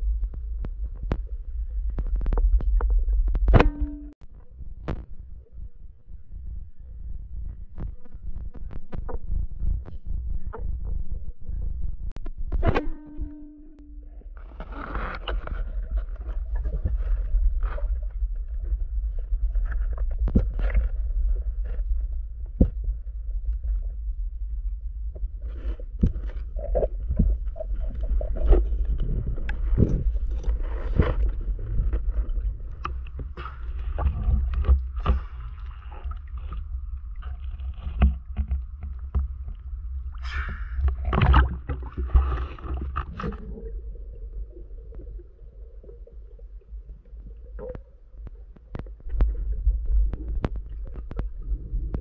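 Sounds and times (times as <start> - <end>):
underwater rumble: 0.0 - 52.0.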